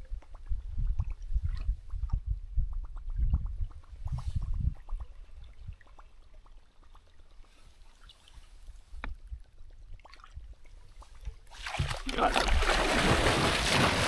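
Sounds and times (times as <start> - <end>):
water lapping: 4.4 - 14.0.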